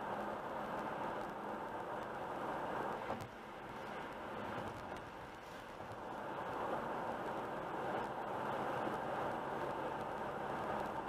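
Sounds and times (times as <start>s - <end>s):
car road and tyre noise: 0.0s - 11.0s.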